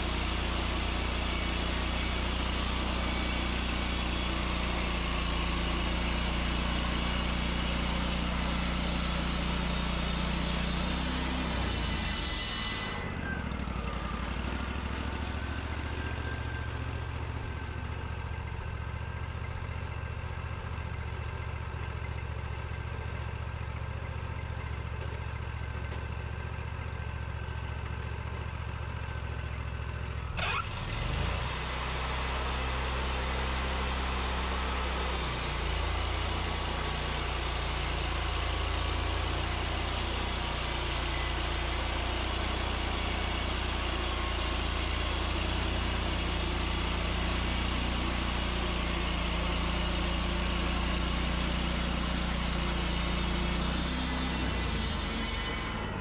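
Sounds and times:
sawmill engine running: 0.0s - 56.0s.

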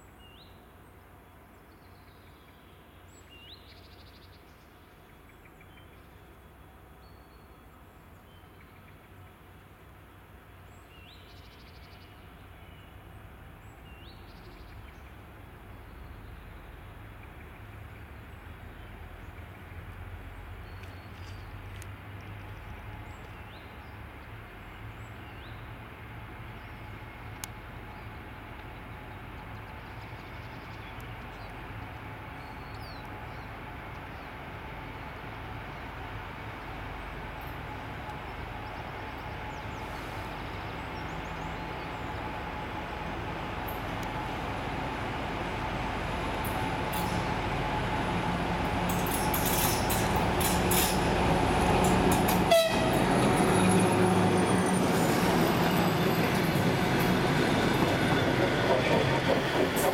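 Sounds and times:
distant diesel locomotive droning: 12.2s - 59.9s.

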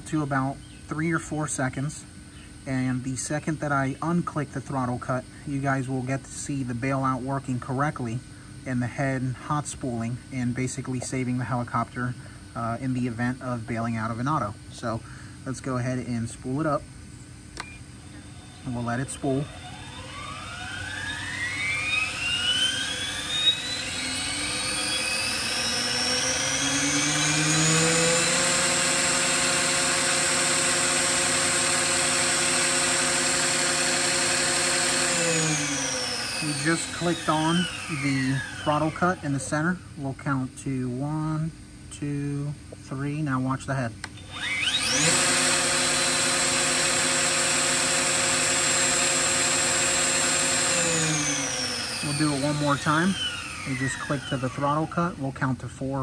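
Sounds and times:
rc helicopter motor whine: 17.6s - 39.9s, 44.0s - 55.1s.

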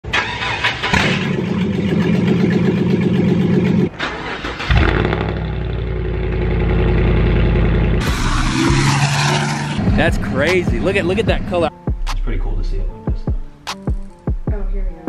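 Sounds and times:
pickup truck engine running: 0.1s - 11.8s.

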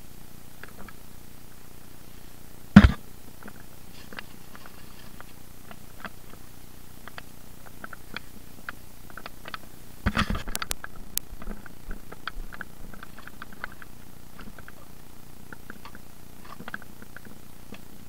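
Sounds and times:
light clicks and ticks: 7.0s - 14.8s.

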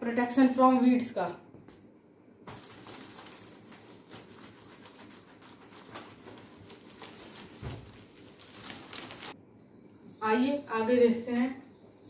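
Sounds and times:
eraser rubbing whiteboard: 4.0s - 8.2s.

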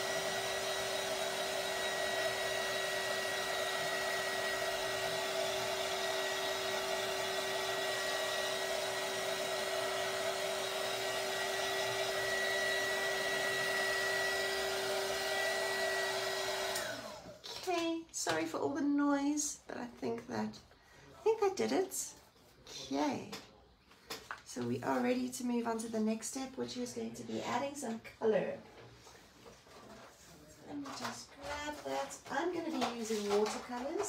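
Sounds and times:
heat tool blowing hot air: 0.0s - 17.3s.

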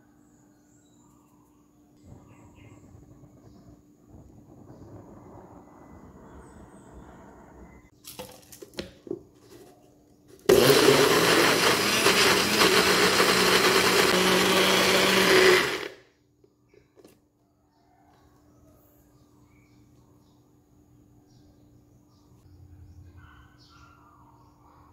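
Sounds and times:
blender grinding: 10.4s - 16.0s.

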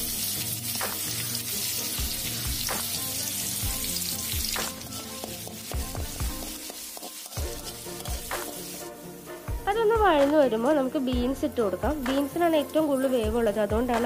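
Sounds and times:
onion sizzling in oil: 0.0s - 14.0s
metal spoon scraping pan: 3.9s - 8.8s.

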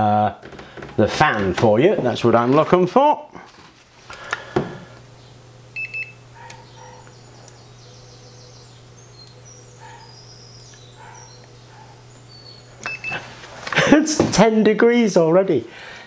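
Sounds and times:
small fan humming: 0.0s - 16.0s
thermometer beeping: 5.7s - 13.3s.

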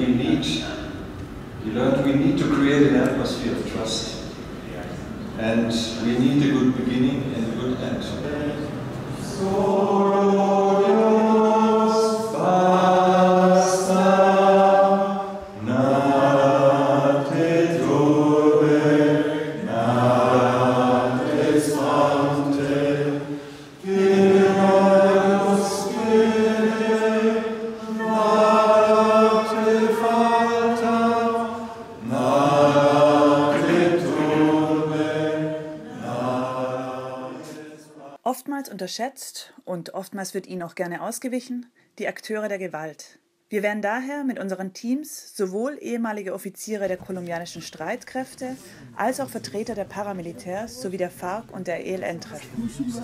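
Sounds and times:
group singing a slow chant: 8.5s - 38.2s.

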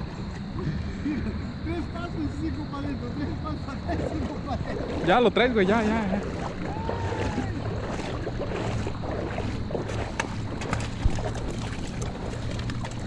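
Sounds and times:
wind buffeting microphone: 2.0s - 13.0s
river water rushing: 3.8s - 13.0s.

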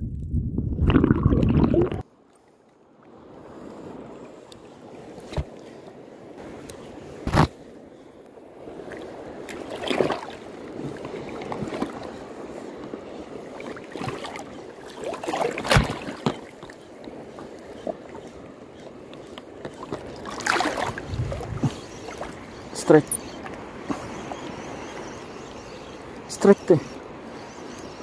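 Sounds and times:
wind on microphone: 0.0s - 2.0s, 20.6s - 22.5s
sea water washing and splashing: 8.5s - 25.2s.

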